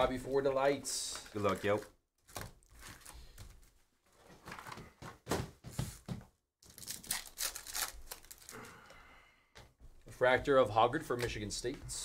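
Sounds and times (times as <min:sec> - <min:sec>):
foil pack tearing and crinkling: 0:06.6 - 0:08.6.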